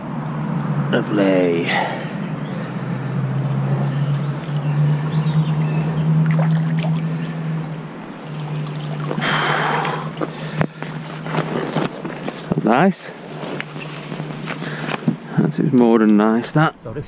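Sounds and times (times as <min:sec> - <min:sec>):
bird chirps: 0:00.0 - 0:12.6, 0:13.2 - 0:17.0
low engine hum: 0:00.0 - 0:17.0
rustle of leaves: 0:06.1 - 0:16.2.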